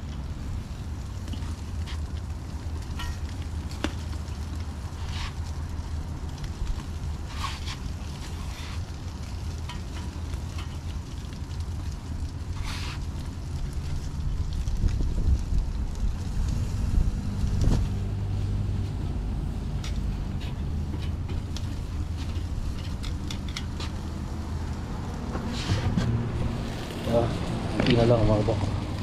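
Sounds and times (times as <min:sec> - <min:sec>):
food sizzling on a grill: 0:00.0 - 0:28.9
low rumble: 0:11.4 - 0:29.0.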